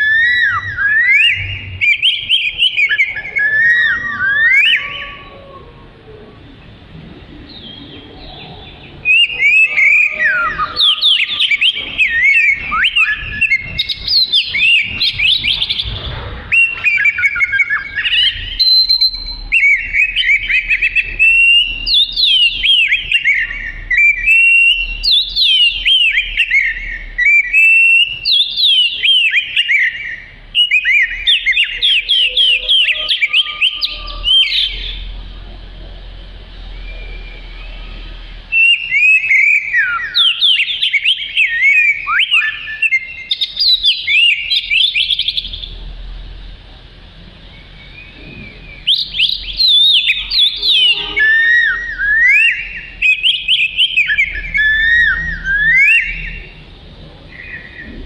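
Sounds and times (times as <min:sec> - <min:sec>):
bird singing whistled notes: 0:00.0 - 0:05.6, 0:07.5 - 0:35.2, 0:36.6 - 0:45.8, 0:47.5 - 0:56.6, 0:57.3 - 0:58.0.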